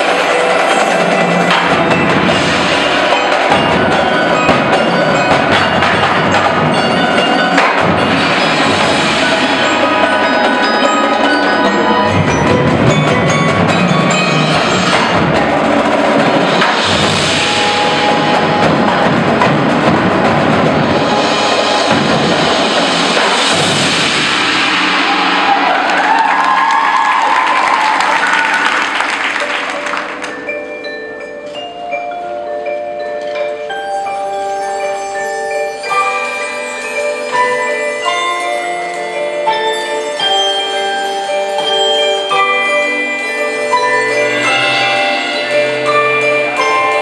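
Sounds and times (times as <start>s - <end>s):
marching drumline: 0.0s - 30.5s
cymbals: 0.0s - 47.0s
marimbas playing rapid runs: 0.0s - 47.0s.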